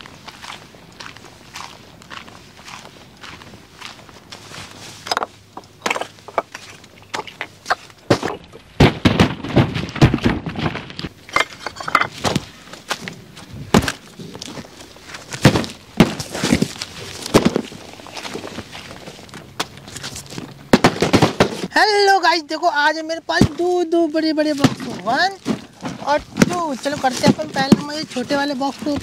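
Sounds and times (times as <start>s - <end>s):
footsteps on gravel: 0.0s - 8.6s, 9.7s - 21.7s, 23.3s - 29.0s
cardboard boxes thudding: 8.1s - 11.0s, 13.6s - 14.1s, 15.2s - 19.0s, 19.6s - 21.7s, 24.5s - 29.0s.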